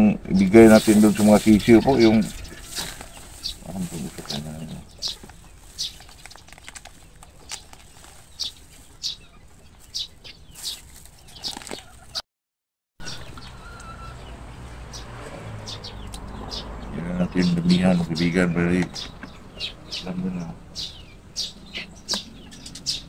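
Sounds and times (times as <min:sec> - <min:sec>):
chicks peeping: 0:00.0 - 0:12.2, 0:13.0 - 0:23.0.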